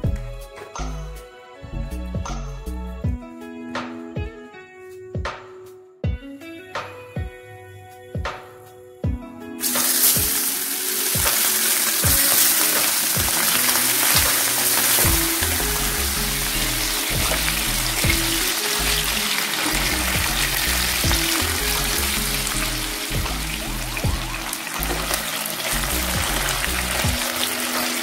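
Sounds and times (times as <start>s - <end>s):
fish sizzling in hot oil: 9.6s - 28.0s.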